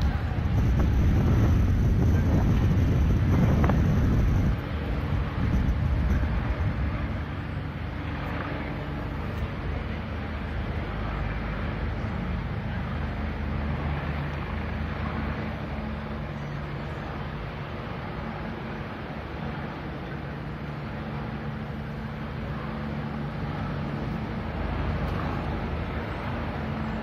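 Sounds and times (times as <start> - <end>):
low rumble: 0.0 - 7.3
wind buffeting microphone: 0.0 - 12.7.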